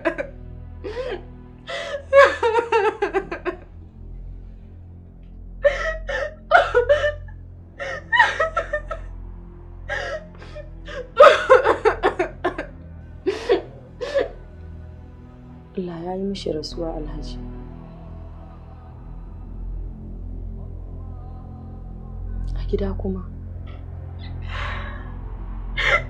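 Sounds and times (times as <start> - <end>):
woman crying and sobbing: 0.0 - 3.6, 5.6 - 9.1, 9.9 - 14.5, 24.2 - 25.1, 25.8 - 26.0.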